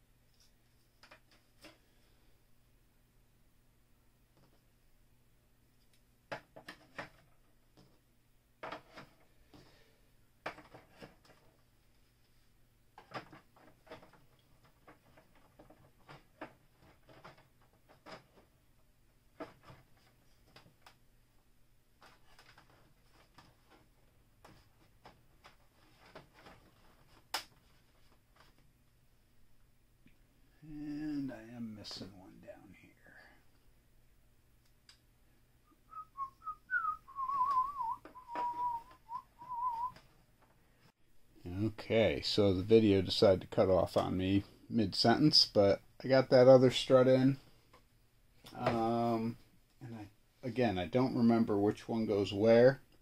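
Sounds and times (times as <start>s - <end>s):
man whistling a tune: 35.7s - 39.9s.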